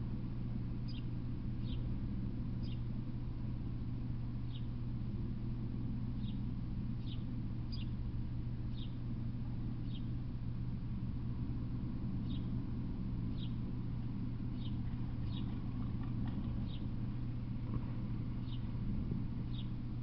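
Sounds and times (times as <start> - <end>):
steady low hum: 0.0 - 20.0
bird chirping: 0.9 - 1.8, 2.6 - 2.8, 7.0 - 8.0, 8.7 - 9.0, 9.8 - 10.1, 12.2 - 12.5, 13.3 - 13.6, 14.5 - 17.0, 18.3 - 18.8, 19.5 - 19.8.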